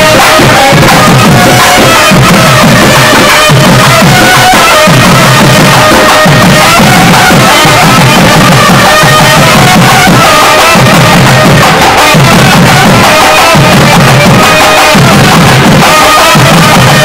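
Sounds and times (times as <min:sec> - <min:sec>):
steady drum beat: 0:00.0 - 0:17.0.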